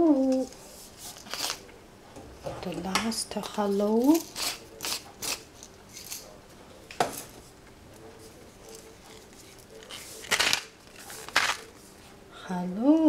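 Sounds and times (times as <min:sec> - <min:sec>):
seasoning shaker shaking: 0:03.6 - 0:06.3.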